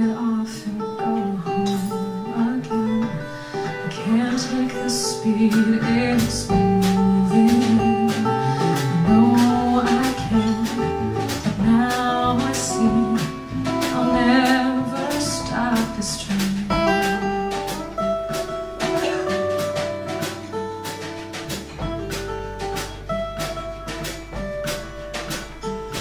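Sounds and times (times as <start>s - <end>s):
woman singing: 0.0s - 17.8s
live band with acoustic guitar: 0.0s - 26.0s.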